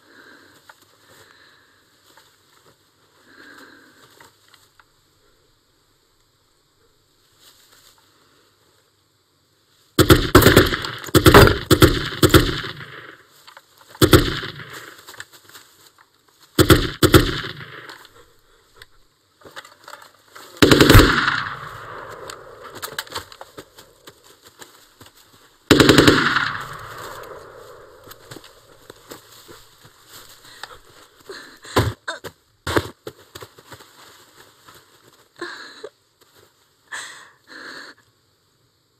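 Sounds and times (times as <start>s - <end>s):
automatic gunfire bursts: 10.0s - 13.2s, 14.0s - 14.8s, 16.6s - 17.9s, 20.6s - 23.6s, 25.7s - 28.9s.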